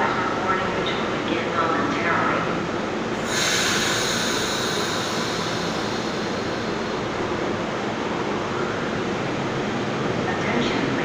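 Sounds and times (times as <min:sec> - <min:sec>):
railcar equipment hum: 0:00.0 - 0:11.0
sharp air hiss: 0:03.2 - 0:07.6.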